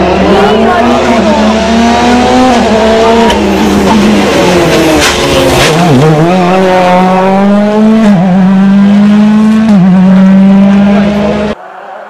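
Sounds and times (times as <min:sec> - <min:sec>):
rally car engine revving: 0:00.0 - 0:11.6
sharp crack: 0:04.9 - 0:05.9.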